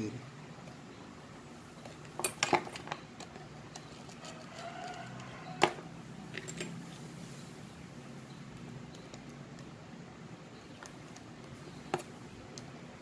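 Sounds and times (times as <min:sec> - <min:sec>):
small metal clicks and clinks: 0:02.2 - 0:06.8.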